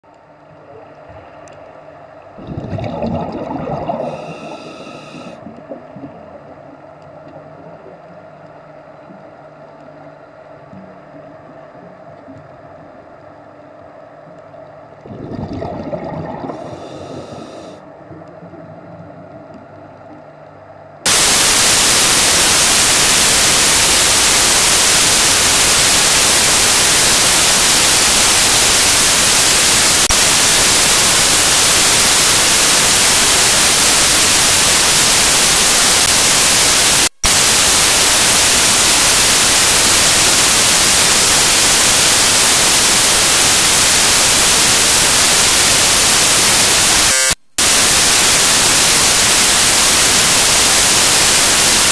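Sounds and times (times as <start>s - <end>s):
loud static hiss: 0.2s - 18.2s, 21.0s - 51.9s
faint sound: 2.4s - 8.4s.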